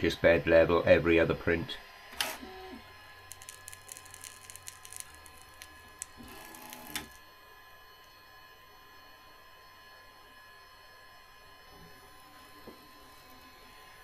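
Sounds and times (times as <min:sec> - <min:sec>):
stepper motor whine: 0:02.4 - 0:08.1.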